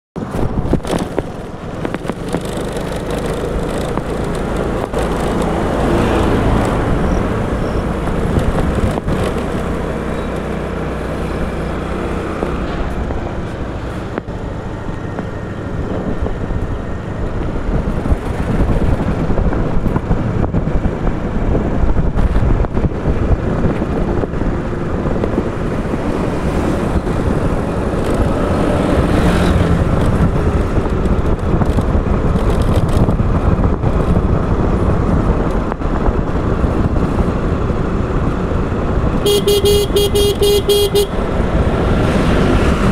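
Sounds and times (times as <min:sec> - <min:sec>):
road noise: 0:00.2 - 0:42.9
scooter engine running: 0:00.3 - 0:35.4, 0:36.5 - 0:42.9.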